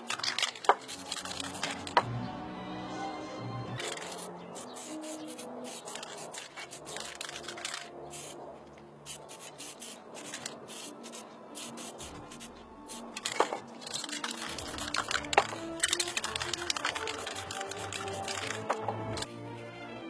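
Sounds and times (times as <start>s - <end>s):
faint music: 0.0s - 20.0s
pencil scratching on paper: 3.8s - 8.4s, 9.0s - 18.7s.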